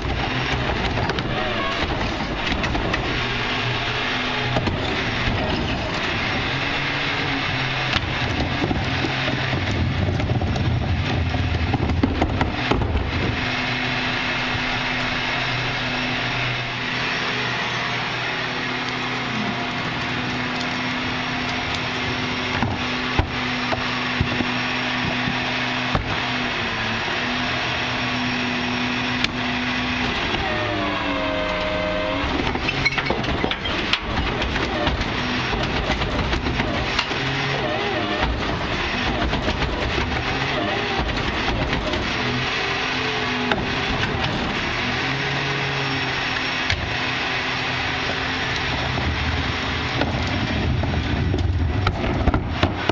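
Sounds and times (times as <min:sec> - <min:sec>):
engine revving: 0:00.0 - 0:52.9
garbage truck engine humming: 0:00.0 - 0:52.9
cart lifted with clatter: 0:32.4 - 0:42.1.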